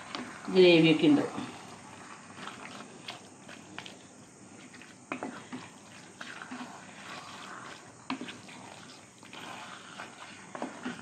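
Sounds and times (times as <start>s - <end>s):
spoon stirring thick curry: 0.0s - 11.0s.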